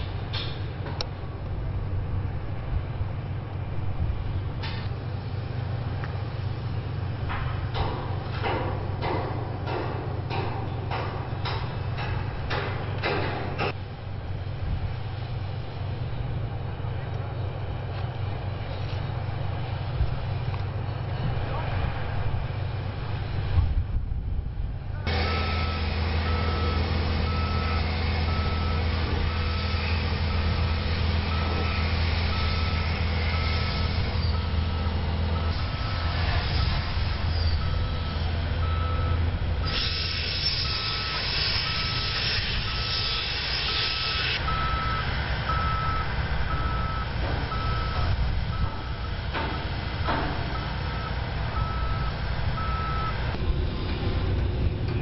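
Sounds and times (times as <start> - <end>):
engine running hum: 0.0 - 55.0
vehicle backup alarm beeping: 25.1 - 43.1, 44.3 - 53.4
loud hiss: 39.7 - 45.4.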